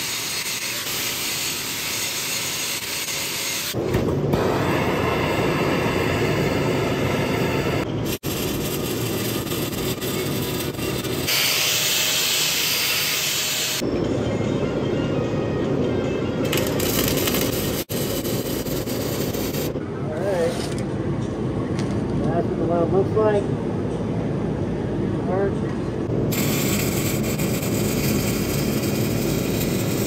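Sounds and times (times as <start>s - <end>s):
angle grinder grinding steel: 0.0s - 3.8s, 26.3s - 30.0s.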